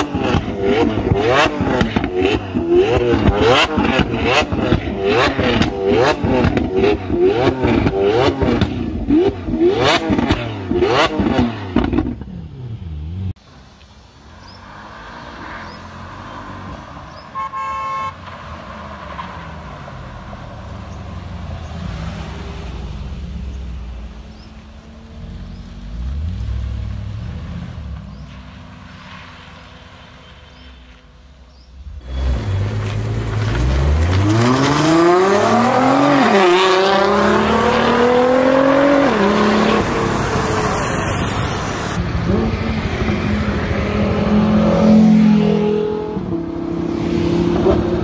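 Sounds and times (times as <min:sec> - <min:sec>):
sports car engine revving: 0:00.0 - 0:13.3, 0:31.8 - 0:48.0
street traffic: 0:00.0 - 0:48.0
car horn toot: 0:17.3 - 0:18.3
exhaust cracks and pops: 0:32.6 - 0:35.0.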